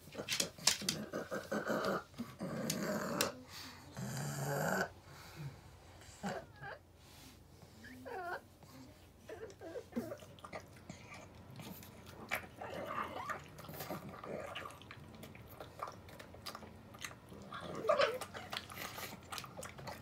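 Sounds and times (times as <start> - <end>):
dog snuffling and chewing: 9.3 - 20.0.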